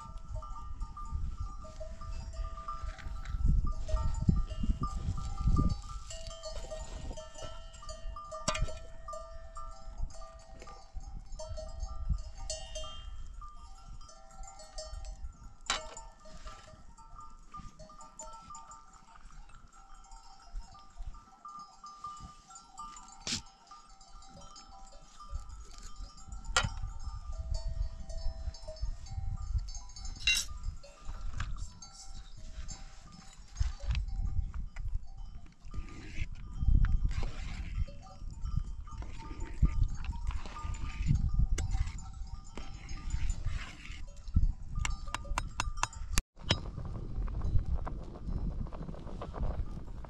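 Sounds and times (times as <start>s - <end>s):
animal bells clinking: 0.0s - 49.9s.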